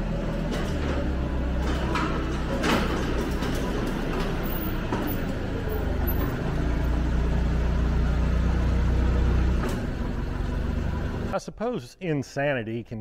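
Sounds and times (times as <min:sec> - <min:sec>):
forklift engine rumble: 0:00.0 - 0:11.4.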